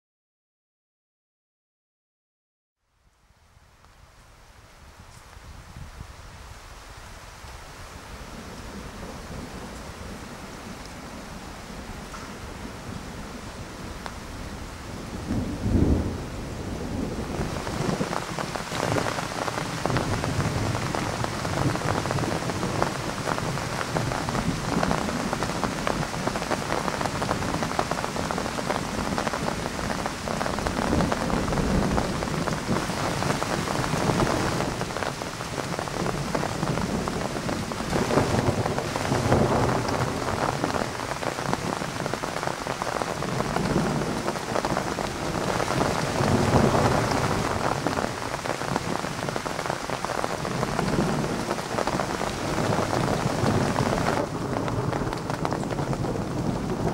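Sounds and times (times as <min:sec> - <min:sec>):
heavy rain falling: 0:03.6 - 0:56.9
thunder rumbling: 0:08.3 - 0:56.9
loud thunderclap: 0:15.2 - 0:56.9.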